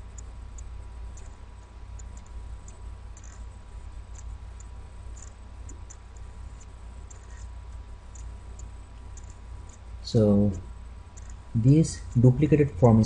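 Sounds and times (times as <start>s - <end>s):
computer mouse clicks: 0.0s - 3.5s, 4.1s - 7.5s, 8.1s - 9.8s, 11.1s - 11.4s
low electrical hum: 0.0s - 13.0s.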